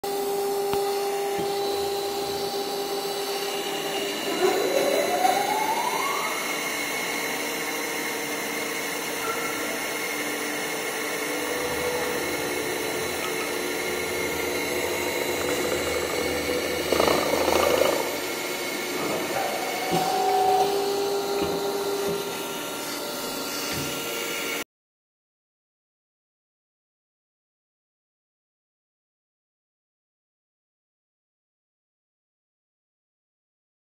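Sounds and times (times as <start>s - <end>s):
motor hum: 0.1s - 24.6s
rising machine whine: 0.1s - 24.6s
belts grinding metal: 9.4s - 20.2s.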